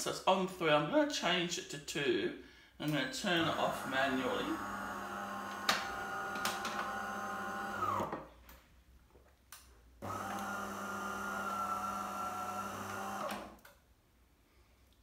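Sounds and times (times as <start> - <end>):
coffee machine pump humming: 3.4 - 8.1, 10.0 - 13.5.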